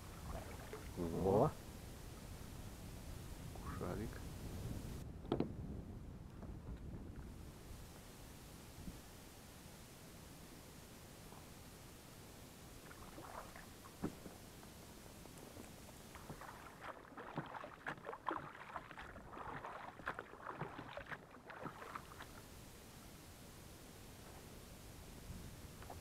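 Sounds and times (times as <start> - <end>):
water splashing and dripping: 0.0 - 1.0, 12.8 - 14.4, 16.0 - 22.4.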